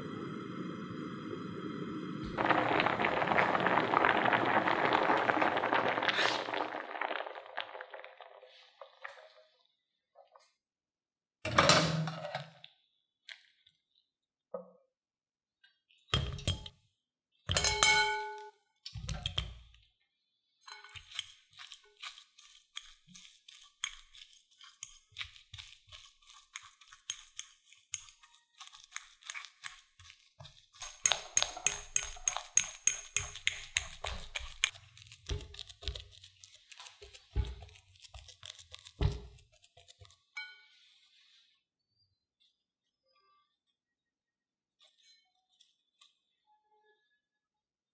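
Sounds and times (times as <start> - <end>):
fork mashing and scraping glass bowl: 20.8 - 40.4.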